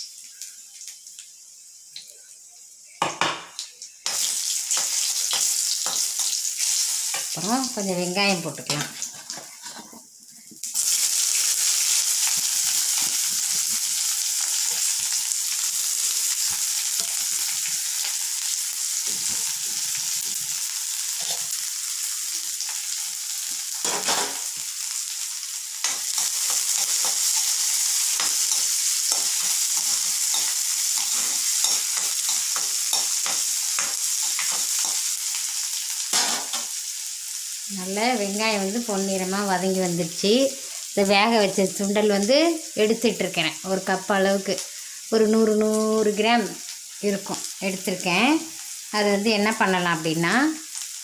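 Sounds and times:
onions sizzling in hot oil: 0.0 - 51.0
spoon scraping a pan: 4.1 - 7.4, 8.6 - 10.1, 21.2 - 21.6, 25.8 - 35.1.

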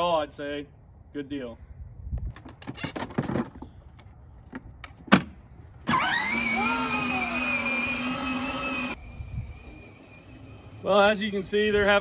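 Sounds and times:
electric motor whining: 5.9 - 10.9.

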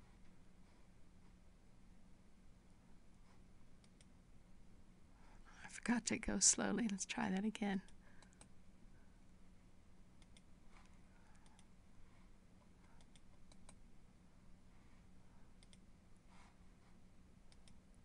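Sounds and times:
low steady hum: 0.0 - 18.0
computer clicks: 3.8 - 4.1, 10.2 - 10.5, 12.9 - 13.8, 15.6 - 15.8, 17.5 - 17.8.

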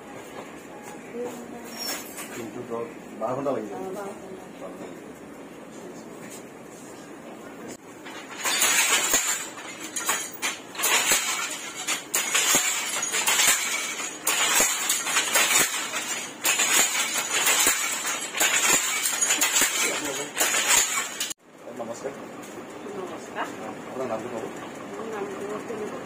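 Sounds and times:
loom clattering: 7.7 - 21.4.

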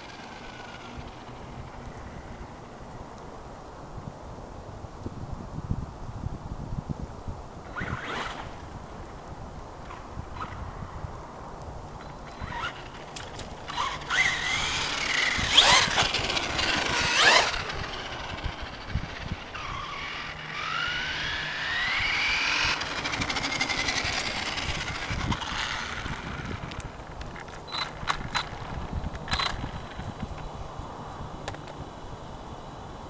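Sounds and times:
tyre noise on asphalt: 7.5 - 32.3
electric motor whining: 12.1 - 26.9.

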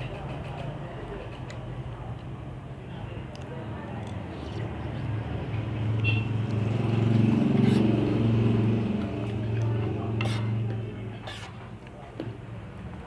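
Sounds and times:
vehicle engine hum: 3.5 - 11.2.

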